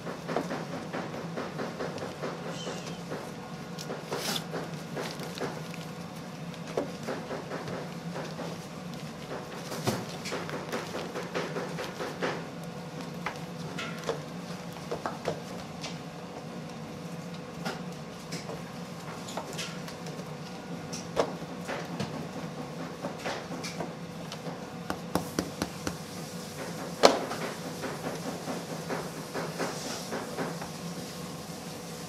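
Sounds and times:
steady background hum: 0:00.0 - 0:32.0
dough tapping on wooden board: 0:24.9 - 0:26.0.

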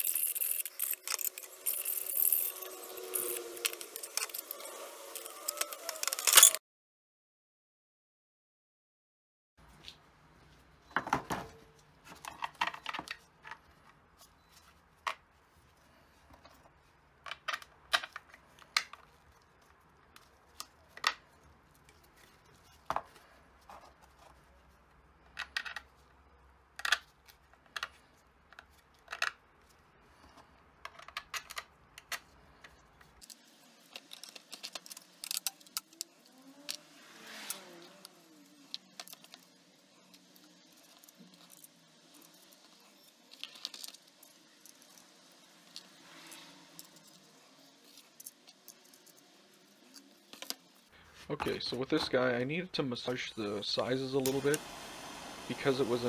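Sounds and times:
plastic parts clicking and knocking: 0:11.0 - 0:14.0, 0:16.3 - 0:19.4, 0:25.2 - 0:36.8.

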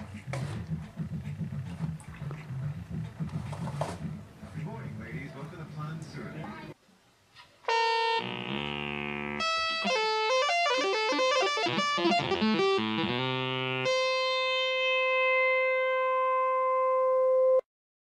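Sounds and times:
held synthesizer note: 0:07.7 - 0:17.6
plucked synthesizer tones: 0:08.2 - 0:17.2.

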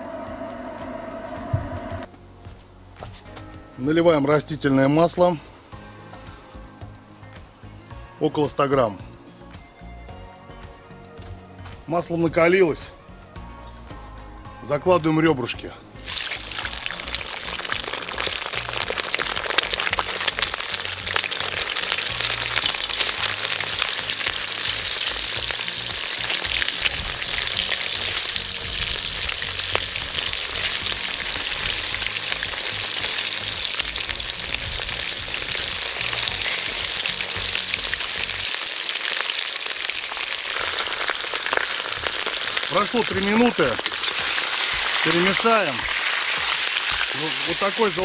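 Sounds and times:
ribs sizzling in hot oil: 0:16.0 - 0:48.0.

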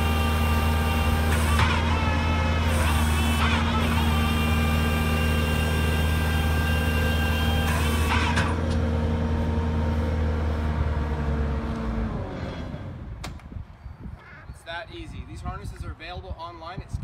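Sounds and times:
diesel engine running under load: 0:00.0 - 0:13.2
hydraulic drive whine: 0:00.0 - 0:13.5.

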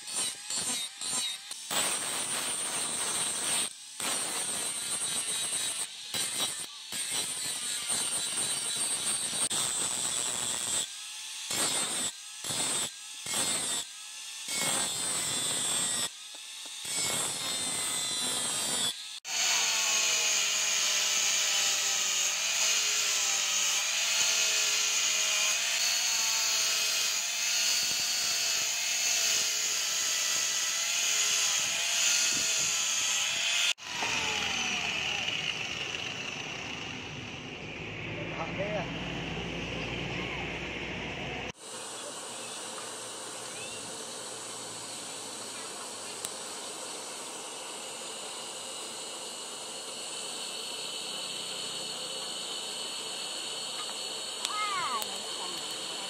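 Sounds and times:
angle grinder grinding steel: 0:00.0 - 0:40.1, 0:41.4 - 0:56.0.

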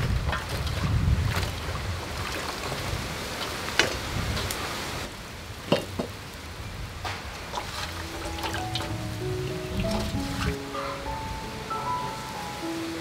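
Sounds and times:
water dripping: 0:05.7 - 0:11.0.

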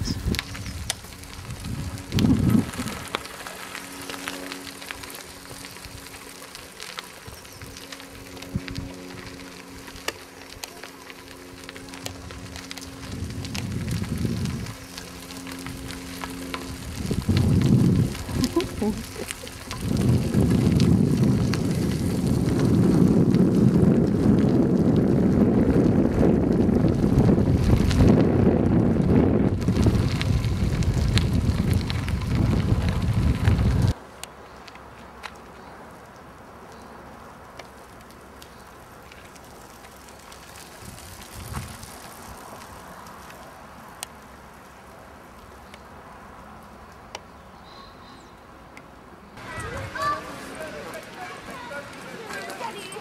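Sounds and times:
wind buffeting microphone: 0:00.0 - 0:04.0, 0:07.2 - 0:09.5, 0:11.8 - 0:34.0, 0:40.5 - 0:42.8, 0:49.4 - 0:53.0
bicycle tyres on gravel: 0:00.0 - 0:53.0
low rumble: 0:11.6 - 0:34.0.

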